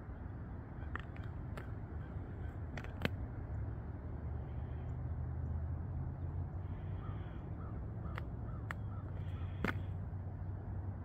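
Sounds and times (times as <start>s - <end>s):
low outdoor rumble: 0.0s - 11.0s
faint crow caws: 0.7s - 3.1s, 6.6s - 10.0s.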